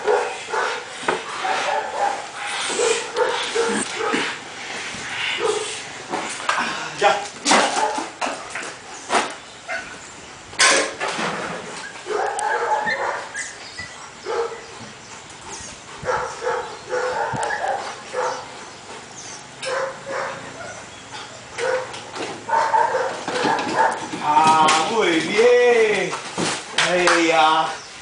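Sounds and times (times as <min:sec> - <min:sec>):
dog barking: 0:00.0 - 0:00.8, 0:01.4 - 0:04.3, 0:05.4 - 0:05.7, 0:07.7 - 0:08.1, 0:12.0 - 0:13.3, 0:14.2 - 0:14.6, 0:16.0 - 0:18.5, 0:19.6 - 0:20.9, 0:21.6 - 0:24.1
dog whining and yipping: 0:11.7 - 0:14.6, 0:15.5 - 0:18.5.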